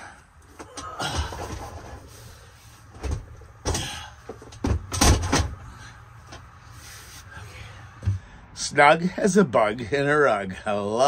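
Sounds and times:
knocks and thumps: 3.0 - 5.6.

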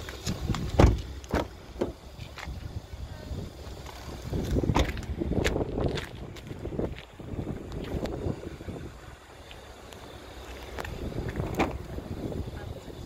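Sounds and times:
footsteps on pavement: 0.0 - 8.3, 9.4 - 12.0
wind buffeting microphone: 0.0 - 9.4, 10.6 - 13.0
loud thump: 0.8 - 2.0.

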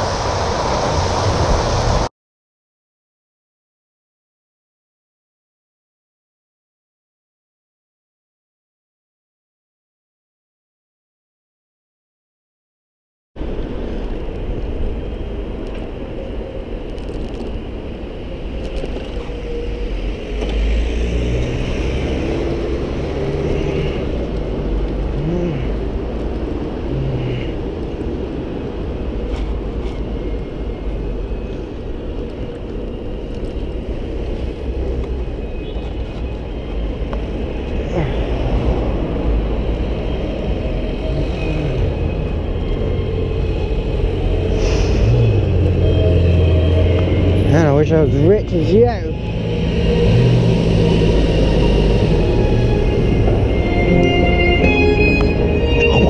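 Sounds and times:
traffic engines passing: 0.0 - 2.1, 13.4 - 56.0
bicycle road rumble: 13.4 - 56.0.

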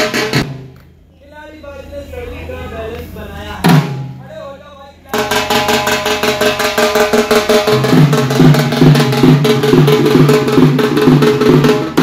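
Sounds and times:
barrel drum playing: 0.0 - 0.8, 3.6 - 4.3, 5.1 - 12.0.

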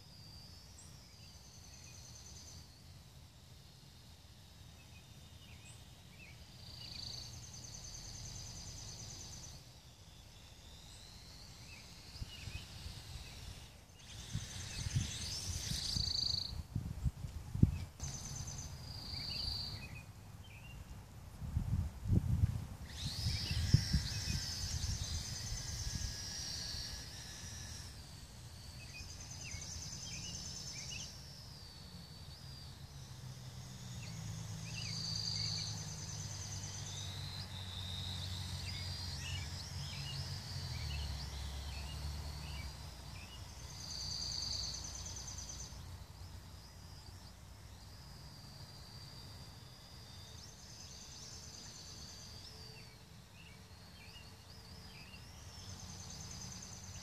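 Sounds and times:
birds chirping: 0.0 - 21.0, 22.8 - 48.0
wind rumble on microphone: 12.2 - 18.6, 21.3 - 26.4.

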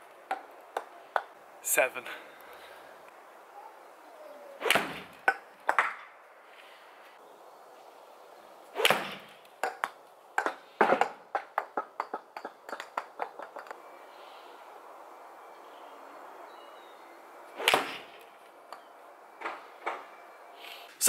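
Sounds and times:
ball bouncing on paving: 0.3 - 1.3, 4.8 - 6.1, 8.8 - 13.7
golf club striking ball: 8.8 - 12.8.

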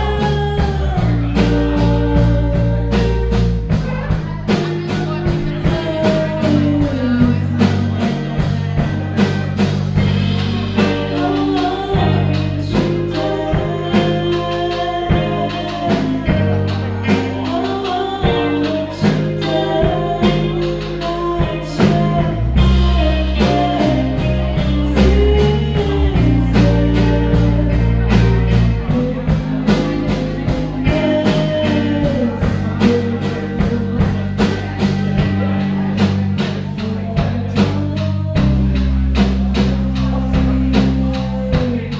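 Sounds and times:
drum beat: 0.0 - 20.6
electric bass: 0.0 - 41.9
electric guitars: 0.0 - 41.9
woman singing lead vocals: 0.0 - 41.9.

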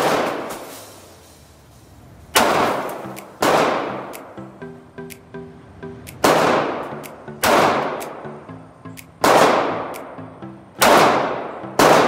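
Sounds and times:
pistol shots echoing indoors: 10.8 - 12.0.

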